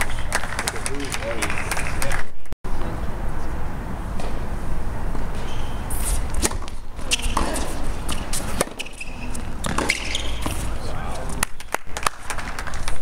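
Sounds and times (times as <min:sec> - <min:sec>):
tennis ball struck by rackets: 0:06.4 - 0:10.7.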